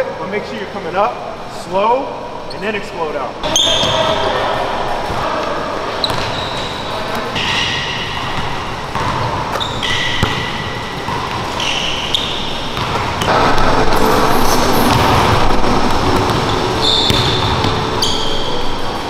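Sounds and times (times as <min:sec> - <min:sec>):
sneakers squeaking on hardwood: 0:03.4 - 0:04.3, 0:06.0 - 0:15.5, 0:16.2 - 0:18.8
basketball bouncing: 0:06.0 - 0:06.4, 0:07.4 - 0:18.5.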